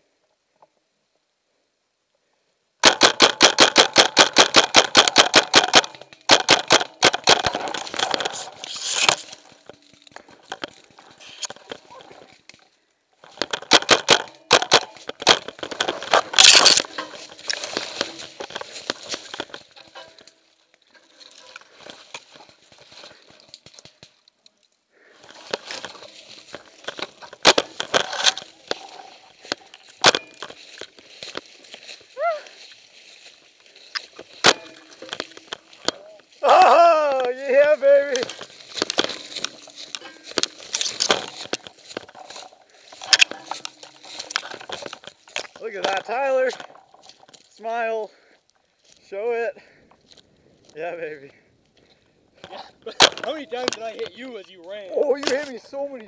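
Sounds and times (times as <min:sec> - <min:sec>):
paintball marker firing: 0:02.8 - 0:07.7, 0:13.5 - 0:15.5
dry leaves and brush rustling: 0:02.9 - 0:50.8, 0:51.4 - 0:56.0.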